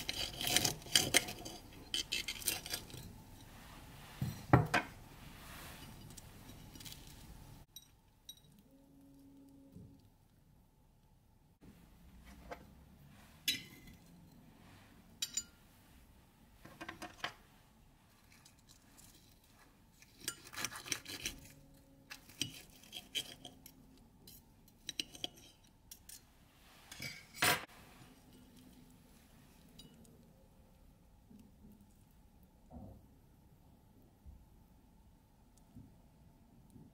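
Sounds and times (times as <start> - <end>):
cutlery clinking and scraping on plate: 0.0 - 3.1, 13.4 - 14.3, 20.0 - 26.2.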